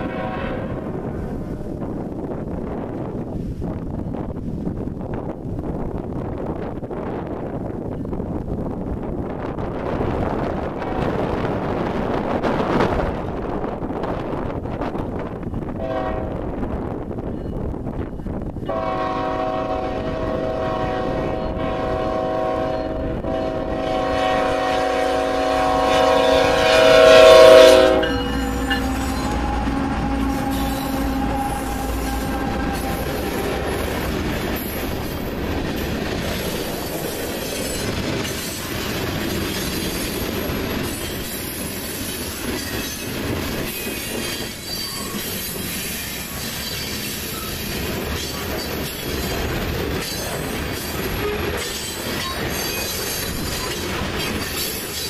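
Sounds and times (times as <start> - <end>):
locomotive air horn blast: 0.0 - 1.5, 15.8 - 16.4, 18.7 - 34.1.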